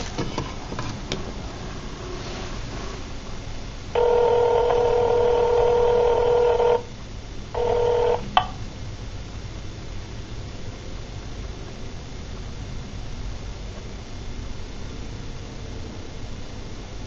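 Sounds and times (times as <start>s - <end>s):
telephone line tone: 4.0s - 6.9s, 7.5s - 8.5s.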